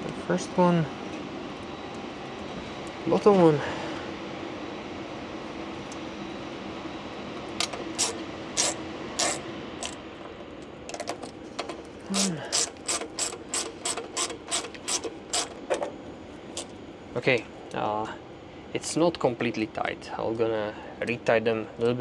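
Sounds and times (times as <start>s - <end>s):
steady low hum: 0.0s - 22.0s
hand ratchet clicking: 8.0s - 10.0s, 12.1s - 15.6s.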